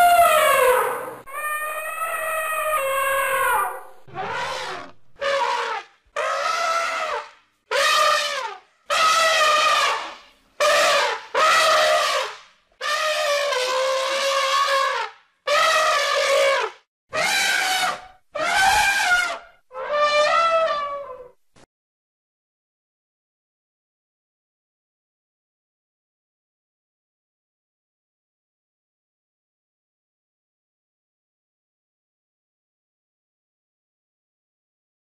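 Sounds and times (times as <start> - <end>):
elephant trumpeting: 0.0 - 21.3.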